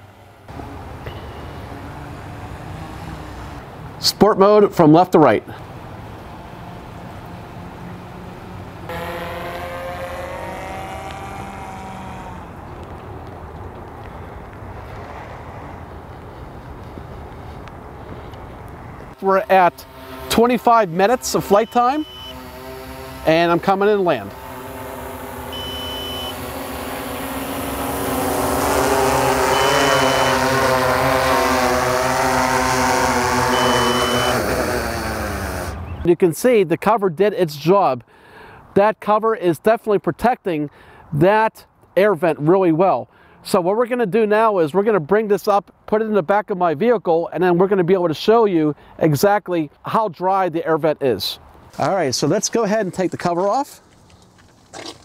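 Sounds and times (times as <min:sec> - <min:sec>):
drone propellers whining: 0:00.0 - 0:03.9, 0:05.9 - 0:15.0, 0:18.1 - 0:36.1
short high beep: 0:21.6 - 0:22.4, 0:25.6 - 0:26.4, 0:29.5 - 0:30.5, 0:33.5 - 0:34.4
tones sliding down in pitch: 0:24.4 - 0:35.3.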